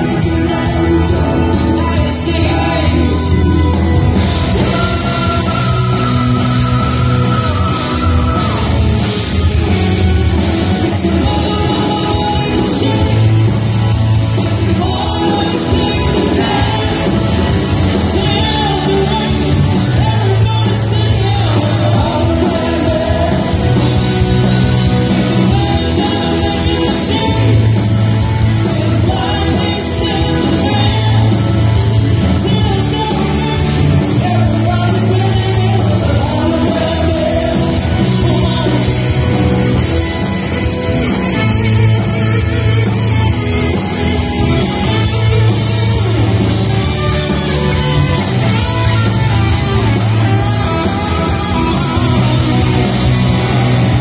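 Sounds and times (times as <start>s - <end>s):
male singer: 0.0s - 9.0s, 10.4s - 39.9s
bass guitar: 0.0s - 54.0s
drums: 0.0s - 54.0s
electric guitars: 0.0s - 54.0s.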